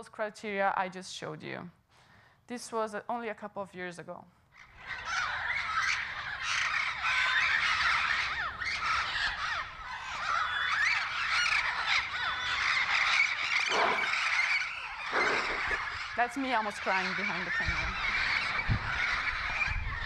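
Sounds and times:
parrots squawking: 4.6 - 20.0.

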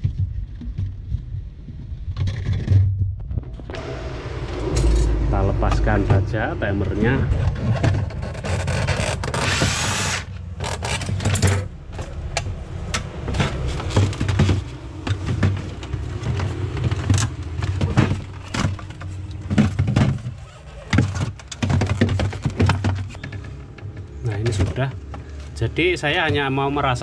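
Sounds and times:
low rumble: 2.9 - 9.6, 10.2 - 19.5.

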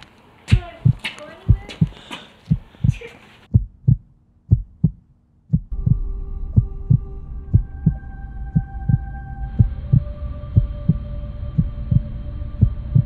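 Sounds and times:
heartbeat thumps: 0.5 - 13.0
electronic drone: 5.7 - 13.0.

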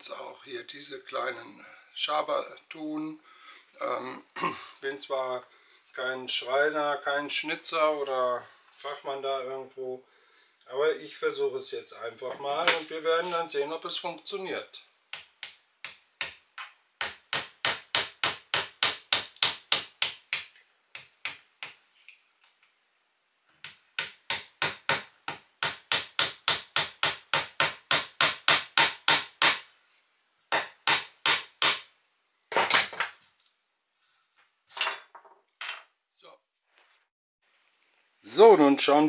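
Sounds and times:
hammer tapping chisel into wood: 15.1 - 21.8, 23.6 - 29.7, 30.5 - 31.9.

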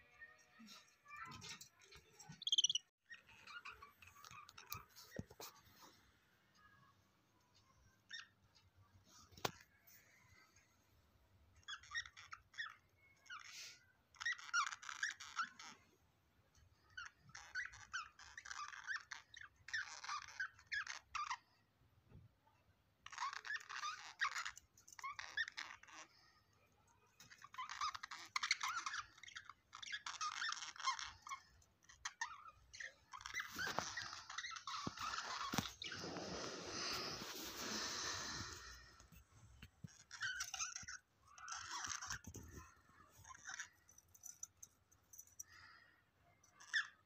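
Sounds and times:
budgerigars chirping and squeaking: 1.2 - 5.6, 11.6 - 15.8, 16.8 - 21.6, 23.1 - 26.4, 27.2 - 39.0, 39.8 - 44.4, 46.5 - 47.0
rustling noise: 34.8 - 39.9.

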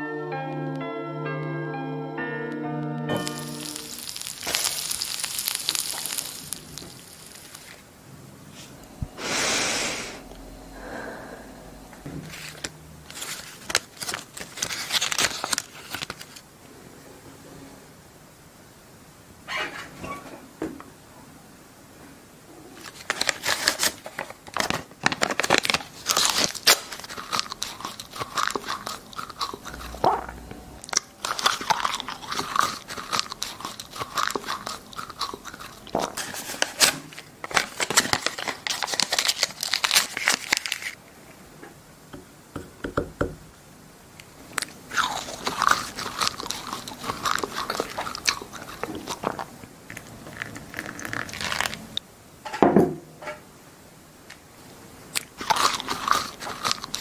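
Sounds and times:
paper banknotes crumpling: 3.2 - 7.8, 12.3 - 16.4, 22.8 - 29.8, 31.0 - 41.0, 44.9 - 49.4, 50.3 - 51.9.

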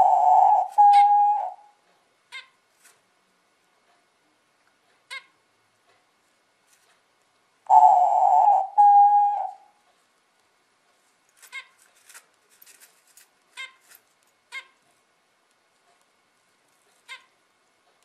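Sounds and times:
dove cooing: 0.0 - 1.8, 7.7 - 9.8.

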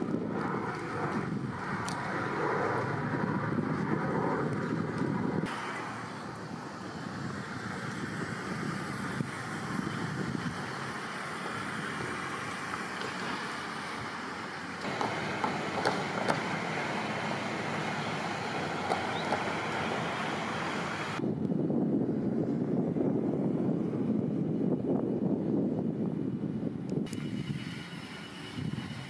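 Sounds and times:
outdoor rushing noise: 0.0 - 24.5.

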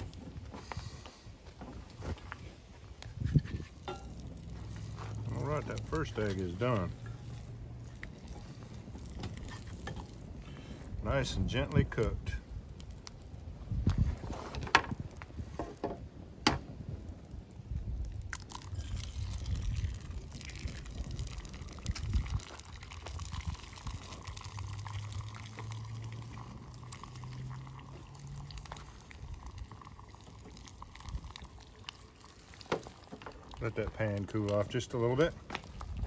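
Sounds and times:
egg sizzling in butter: 3.2 - 13.4, 18.0 - 34.6.

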